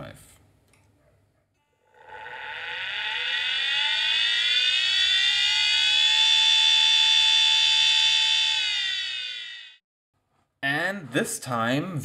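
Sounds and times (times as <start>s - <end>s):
hard drive motor whine: 1.9s - 9.8s.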